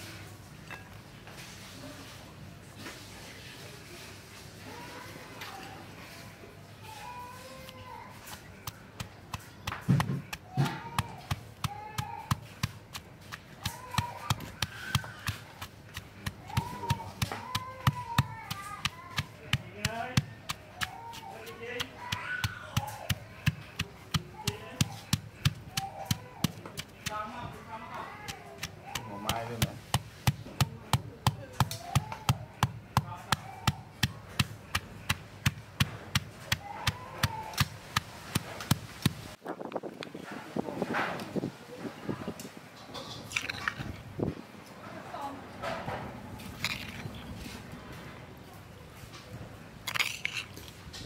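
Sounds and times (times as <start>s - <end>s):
stone pestle pounding in mortar: 8.3s - 27.4s, 28.2s - 39.4s.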